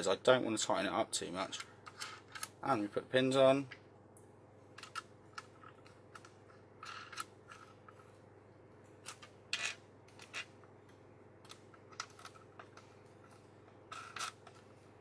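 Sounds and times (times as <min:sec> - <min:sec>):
small clicks and scrapes of mounting pins: 0:01.5 - 0:02.6, 0:04.7 - 0:08.2, 0:08.9 - 0:14.8.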